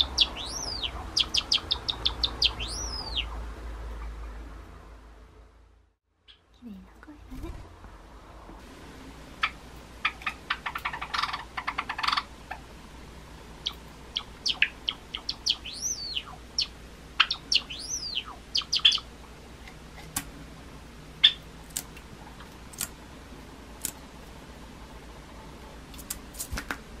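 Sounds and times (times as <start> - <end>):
bird whistled notes: 0.0 - 3.3, 13.6 - 19.0.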